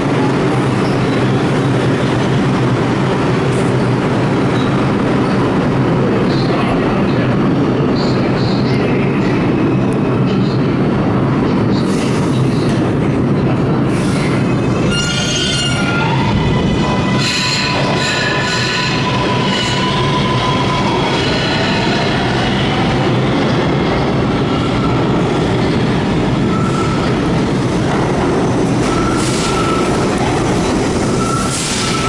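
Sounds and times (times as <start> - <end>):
train wheels rumbling on rail: 0.0 - 32.0
high wheel squeal: 14.0 - 22.2, 31.1 - 32.0.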